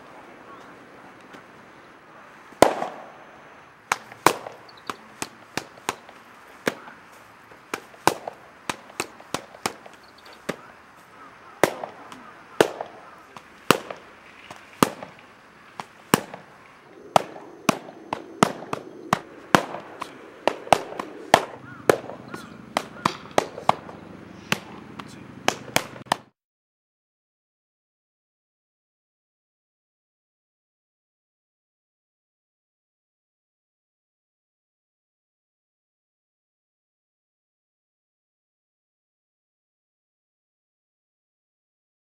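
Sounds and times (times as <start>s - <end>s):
plastic baton striking a pad: 3.9s - 10.7s, 17.2s - 26.3s.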